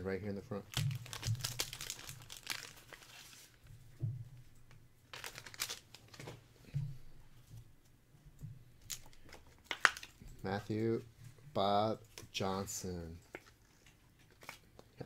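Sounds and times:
cards rustling and crinkling: 0.7s - 3.6s, 5.1s - 6.4s, 8.8s - 11.0s, 11.7s - 15.0s.

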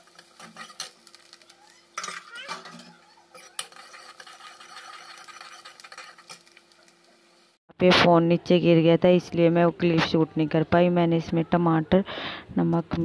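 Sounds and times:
metal ladle scraping pan: 0.0s - 6.6s
oil sizzling: 0.0s - 7.6s.

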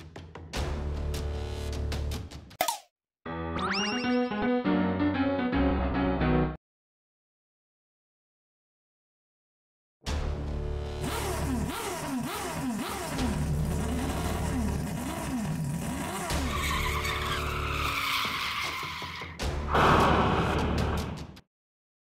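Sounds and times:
car engine revving: 11.0s - 16.6s
tyre screech: 14.9s - 20.0s.

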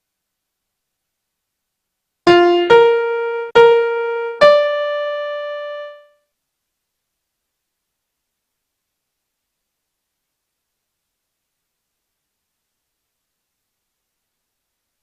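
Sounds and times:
piano notes: 2.3s - 6.1s.

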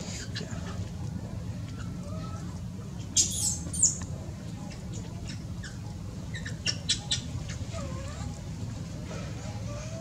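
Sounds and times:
infant monkey squeaking: 3.2s - 4.0s, 5.3s - 8.3s.

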